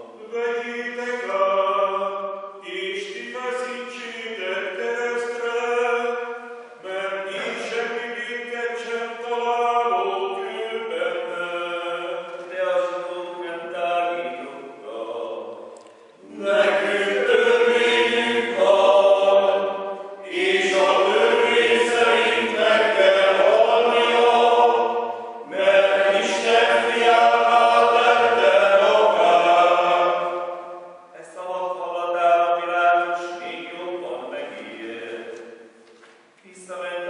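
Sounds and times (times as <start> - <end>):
group of voices chanting: 16.2 - 30.5.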